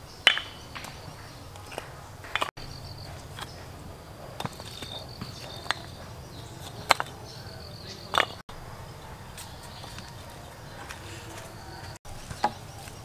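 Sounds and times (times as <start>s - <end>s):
bricks clacking together: 0.2s - 8.4s
high insect chirring: 2.6s - 4.0s.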